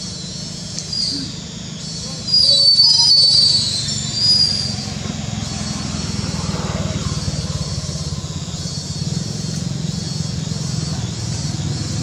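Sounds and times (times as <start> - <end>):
high shrill whine: 0.0 - 9.6
motor droning: 3.4 - 12.0.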